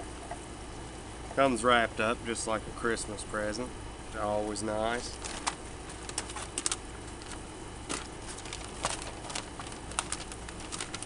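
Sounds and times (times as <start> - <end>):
steady low hum: 0.0 - 11.0
wrapping paper crinkling: 5.0 - 11.0.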